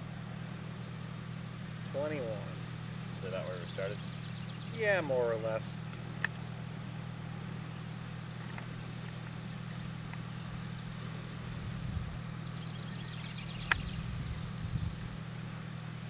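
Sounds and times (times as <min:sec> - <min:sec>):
steady low hum: 0:00.0 - 0:16.0
sharp click: 0:13.6 - 0:13.9.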